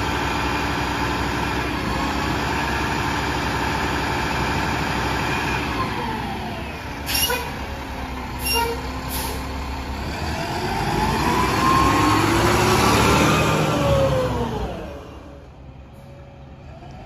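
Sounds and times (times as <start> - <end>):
garbage truck engine revving past: 9.1 - 15.4.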